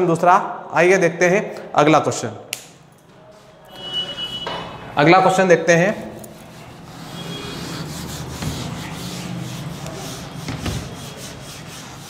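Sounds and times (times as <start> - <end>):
eraser scrubbing whiteboard: 5.7 - 12.0.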